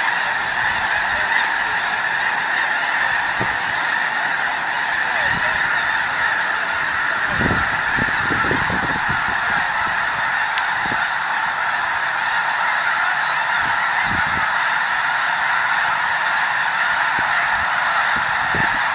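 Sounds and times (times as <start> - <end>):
flock of geese honking: 0.0 - 18.9.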